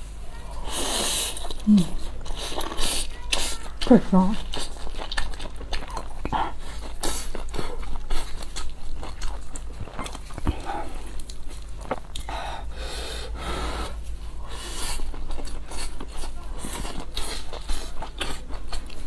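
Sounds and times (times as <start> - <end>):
person chewing and slurping: 0.6 - 19.0
person breathing: 12.2 - 15.0.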